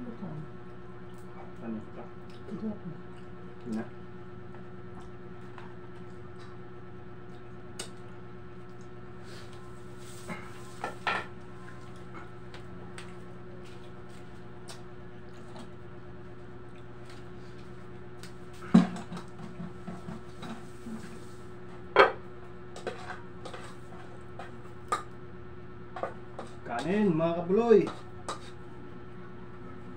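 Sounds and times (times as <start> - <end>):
electric fan humming: 0.0 - 29.9.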